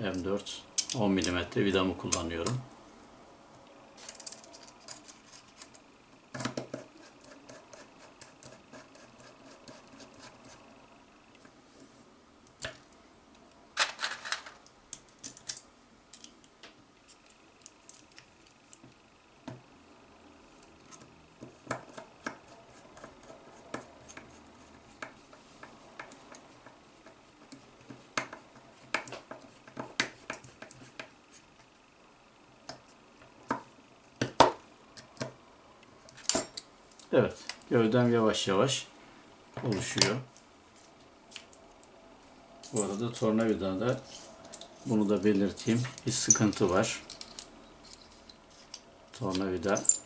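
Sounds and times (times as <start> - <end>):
screws clicking and clattering: 45.9 - 50.0.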